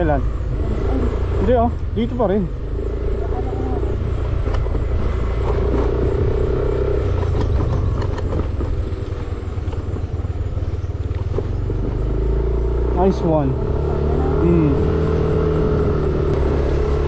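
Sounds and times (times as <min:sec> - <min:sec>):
scooter engine and road rumble: 0:00.0 - 0:17.0
knocks and rattles from bumps: 0:07.1 - 0:08.9.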